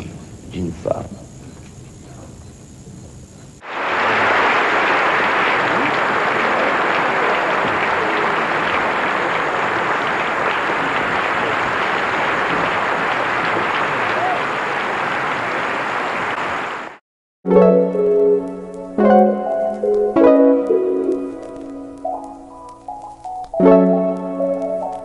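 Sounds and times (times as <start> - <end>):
large audience applauding: 3.6 - 17.0.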